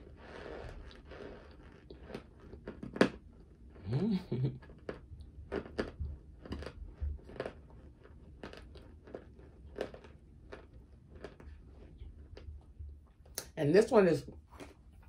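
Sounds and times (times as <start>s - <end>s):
chewing crisp crunches: 0.2s - 3.3s, 4.6s - 12.8s.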